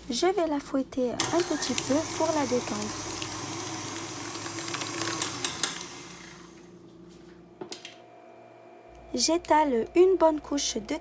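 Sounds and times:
stand mixer motor humming: 1.2 - 6.7.

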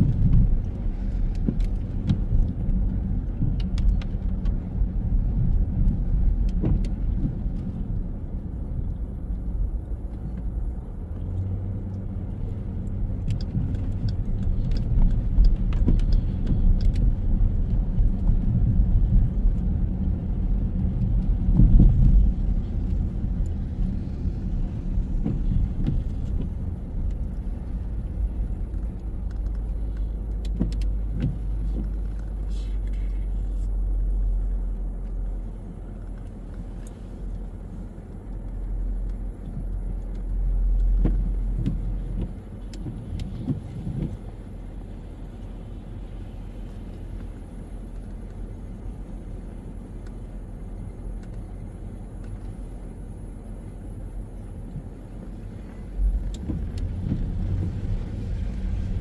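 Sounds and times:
light clicks and rattles: 0.0 - 8.1, 11.1 - 44.4
car engine and road rumble: 0.0 - 59.0.

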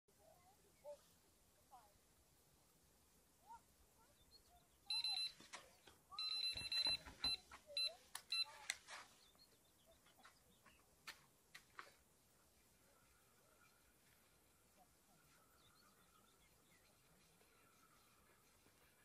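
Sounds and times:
electronic bite alarm beeping: 4.9 - 5.4, 6.2 - 8.5.

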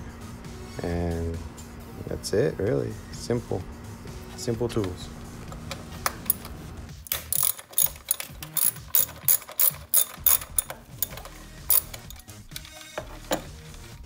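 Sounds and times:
hand ratchet clicking: 6.0 - 13.9.

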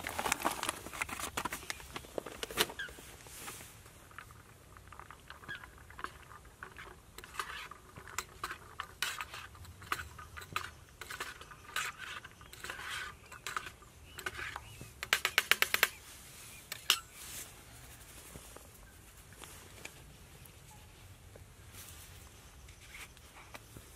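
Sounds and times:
metal spoon scraping metal pot: 4.9 - 14.7.

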